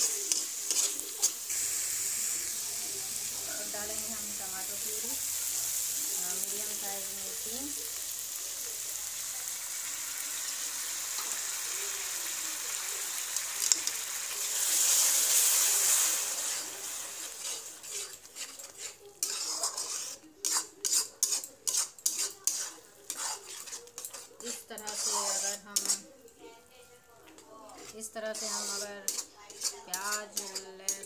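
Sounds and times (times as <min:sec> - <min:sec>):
spatula scraping metal pan: 0:00.0 - 0:01.5, 0:14.8 - 0:26.1, 0:27.7 - 0:31.0
paste sizzling in hot oil: 0:00.0 - 0:26.2, 0:27.7 - 0:31.0.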